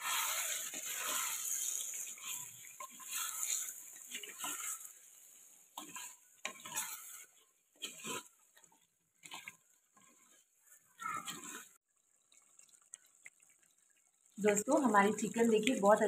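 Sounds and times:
wooden spatula scraping a clay pot: 0.0s - 11.8s.

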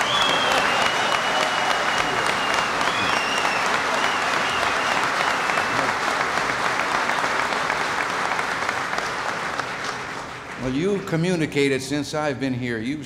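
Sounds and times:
short whistle: 0.0s - 5.9s
audience applauding: 0.0s - 11.2s.

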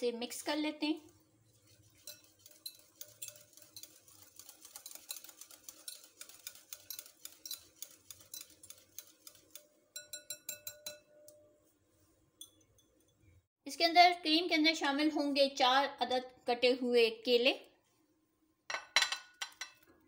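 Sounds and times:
whisk clinking on glass bowl: 1.6s - 11.4s
wire whisk ticking against glass: 2.0s - 11.4s.

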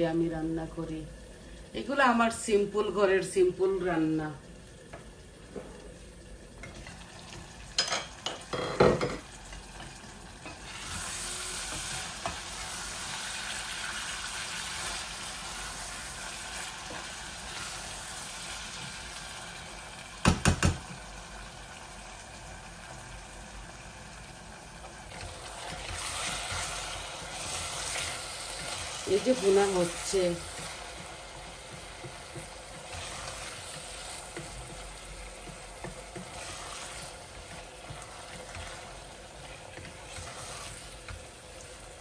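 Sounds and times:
meat sizzling in oil: 1.2s - 42.0s
pot lids clinking: 7.7s - 9.3s
wooden spoon stirring pot: 24.8s - 41.9s.

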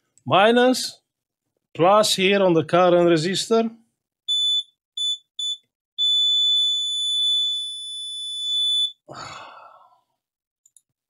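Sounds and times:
multimeter beeping: 4.3s - 9.0s
breathy sigh: 9.1s - 10.2s.

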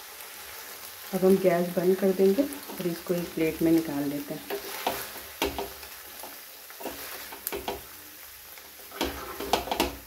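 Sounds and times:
spatula stirring macaroni in a pan: 2.0s - 10.0s
spatula knocking on pan: 4.5s - 5.8s, 6.8s - 7.9s, 8.9s - 10.0s.

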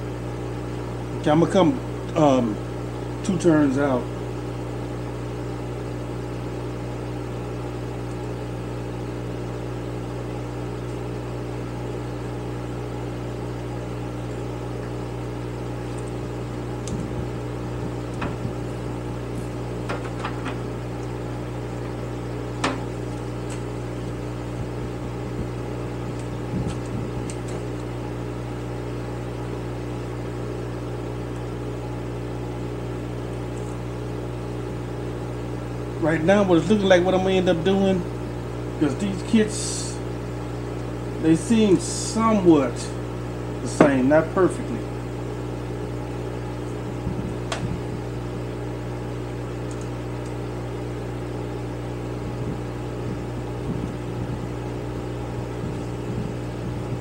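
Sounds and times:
electric fan hum: 0.0s - 57.0s.

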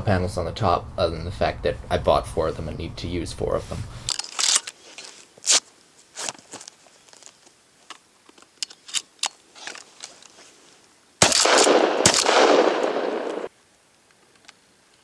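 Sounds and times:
shotgun handling clicks: 4.1s - 4.8s, 7.9s - 10.2s, 11.2s - 13.5s
shotgun shot with echo: 11.2s - 13.5s.

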